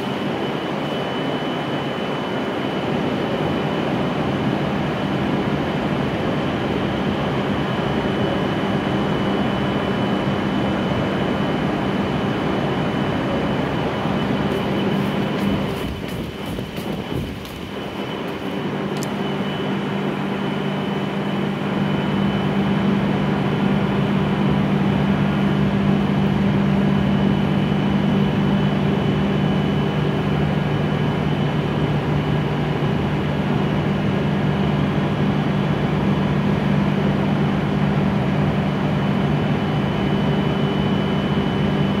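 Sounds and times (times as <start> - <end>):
faint high whine: 0.0 - 42.0
train equipment humming: 12.0 - 26.8.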